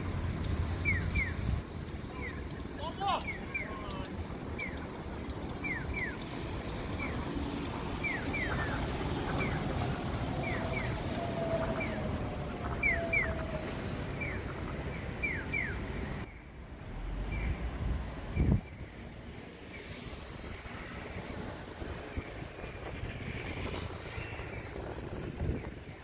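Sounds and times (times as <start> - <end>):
street traffic: 0.0 - 26.0
crossing signal chirping: 0.8 - 4.9, 5.5 - 16.4.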